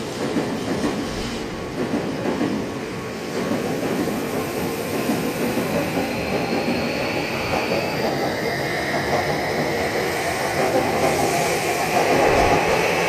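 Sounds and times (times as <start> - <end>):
electric train on tracks: 0.0 - 13.0.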